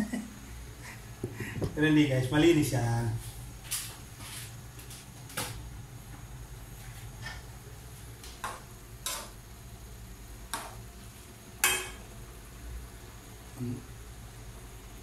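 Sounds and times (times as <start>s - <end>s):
low steady hum: 0.0s - 15.0s
metal pots clanking: 11.6s - 12.0s.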